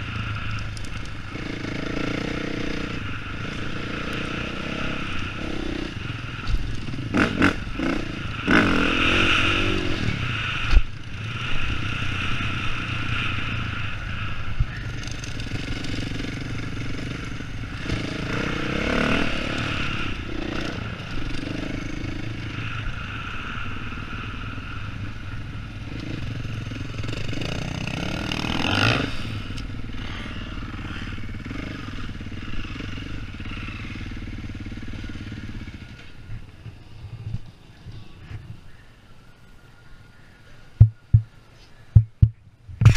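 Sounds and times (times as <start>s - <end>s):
dirt bike engine running: 40.2s - 41.4s
sharp knocks: 42.0s - 42.9s.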